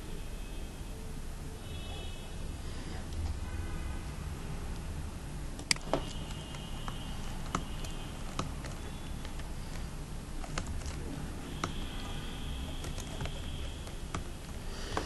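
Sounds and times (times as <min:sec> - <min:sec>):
steady low hum: 0:01.2 - 0:15.0
keyboard keystroke clicks: 0:05.6 - 0:11.0.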